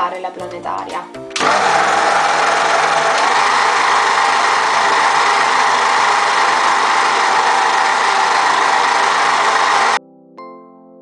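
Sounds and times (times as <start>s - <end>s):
electric stand mixer whirring: 1.4s - 10.0s.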